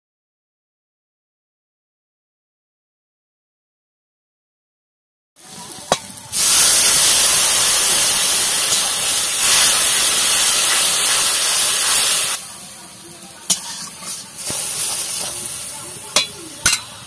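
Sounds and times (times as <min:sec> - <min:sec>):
spice paste sizzling in oil: 0:05.4 - 0:17.0.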